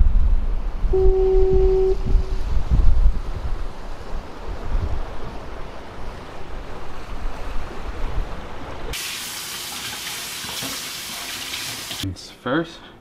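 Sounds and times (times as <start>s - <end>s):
wind buffeting microphone: 0.0s - 8.9s.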